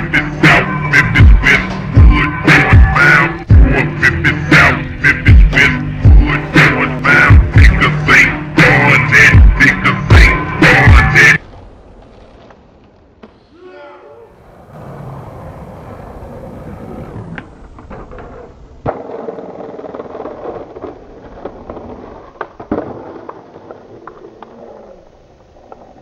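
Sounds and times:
skateboard wheels rolling on pavement: 0.0s - 26.0s
skateboard clacking: 16.4s - 25.0s.

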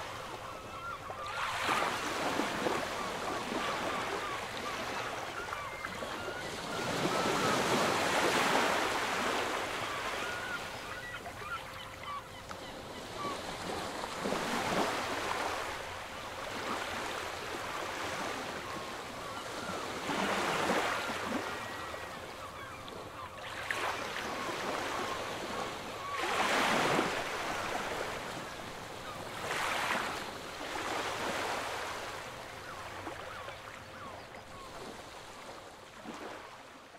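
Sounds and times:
sea waves breaking: 0.0s - 33.4s.

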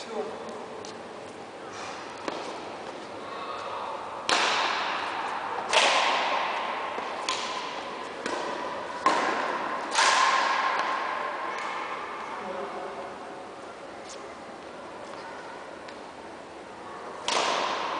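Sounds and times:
racquet striking shuttlecock: 2.2s - 2.7s, 4.2s - 11.8s, 17.2s - 17.9s.

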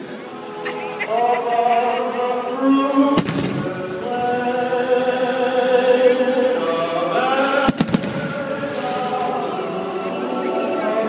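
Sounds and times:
choir singing: 0.2s - 11.0s
firework bangs: 3.2s - 4.2s, 7.6s - 9.4s.

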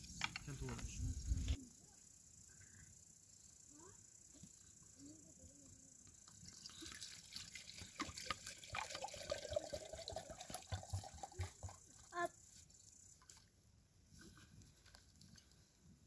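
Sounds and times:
water pouring into teapot: 6.4s - 12.1s.

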